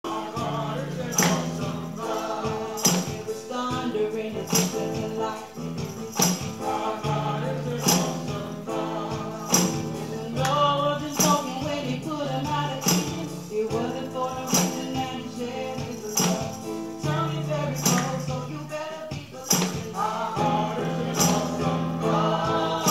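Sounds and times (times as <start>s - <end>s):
gospel singing: 0.0s - 22.9s
steady beat with accented hits: 12.5s - 22.9s.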